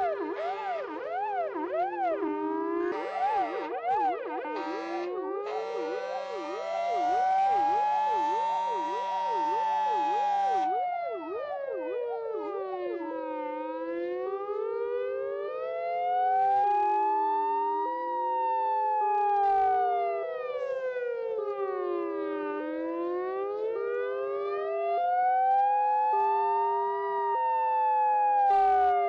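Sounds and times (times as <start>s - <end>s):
siren fast yelp: 0.0s - 29.0s
siren slow wail: 0.0s - 29.0s
two-tone siren: 0.0s - 29.0s
horn blaring: 2.8s - 10.6s.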